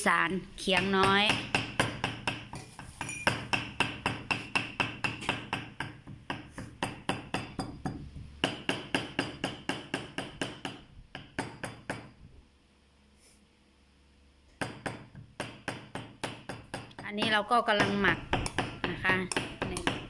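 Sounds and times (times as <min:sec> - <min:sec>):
cleaver chopping on wooden block: 0:01.0 - 0:12.1.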